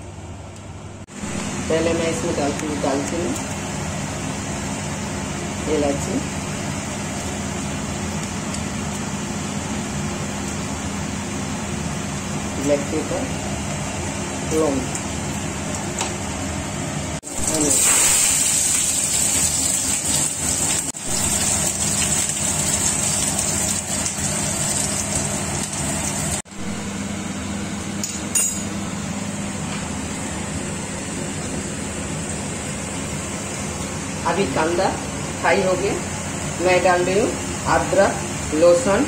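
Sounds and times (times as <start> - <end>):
onion sizzling in oil: 17.2 - 26.4.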